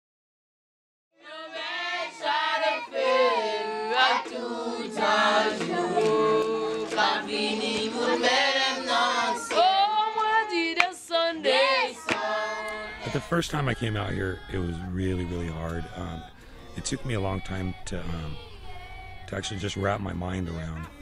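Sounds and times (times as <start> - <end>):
girls and women singing: 1.2 - 21.0.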